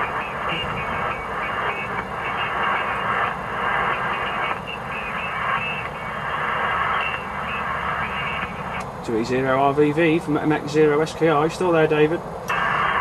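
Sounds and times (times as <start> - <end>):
radio static: 0.0 - 8.8, 10.1 - 13.0
tinny radio voice: 0.0 - 8.8.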